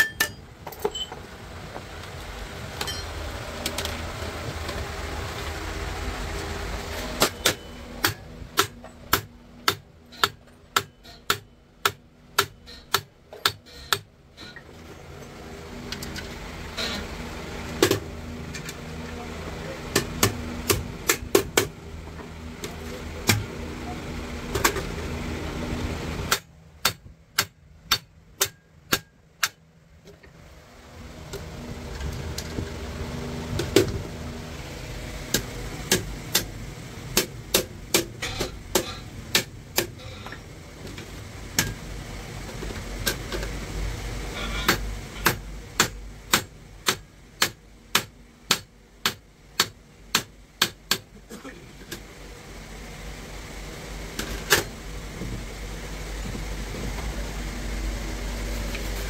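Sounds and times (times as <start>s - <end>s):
hammer striking metal: 0.0s - 1.1s, 2.8s - 3.2s, 7.2s - 14.1s, 26.3s - 29.6s, 37.2s - 40.4s
steady low hum: 0.0s - 59.0s.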